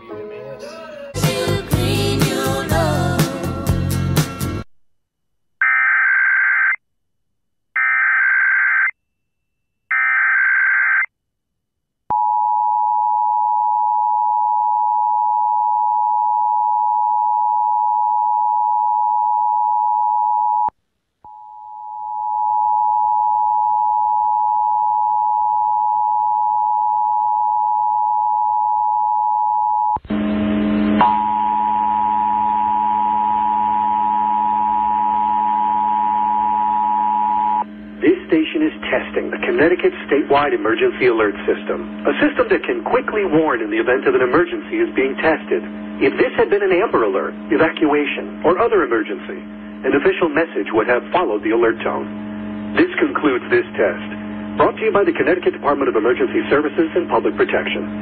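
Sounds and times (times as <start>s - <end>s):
low hum: 30.0s - 58.0s.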